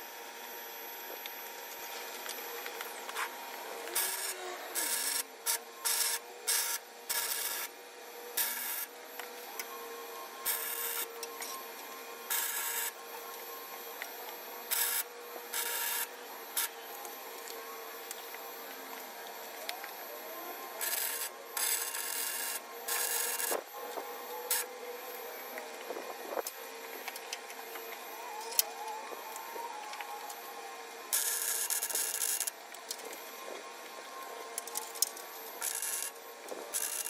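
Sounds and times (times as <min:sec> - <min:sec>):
steady background hum: 0:00.0 - 0:37.0
welder arcing bursts: 0:03.8 - 0:07.7, 0:08.4 - 0:08.9, 0:20.8 - 0:23.5, 0:35.6 - 0:37.0.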